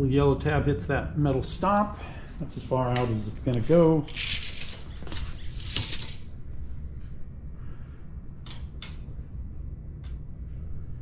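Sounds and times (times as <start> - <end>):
tape measure scraping on metal: 4.0 - 6.2
tape measure clicks: 4.1 - 6.2.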